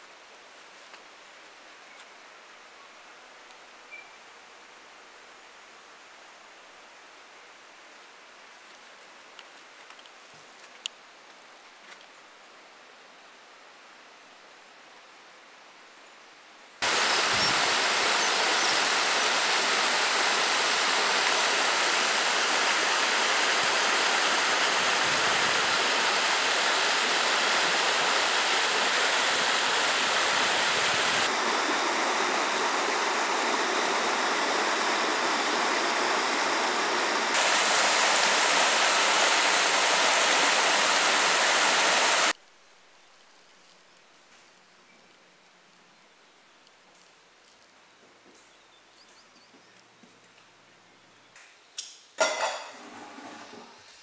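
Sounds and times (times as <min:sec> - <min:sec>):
stream rushing over boulders: 0:16.8 - 0:42.4.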